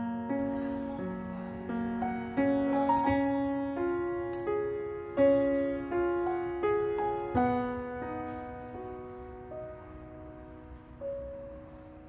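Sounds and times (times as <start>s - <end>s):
gentle piano melody: 0.0s - 12.0s.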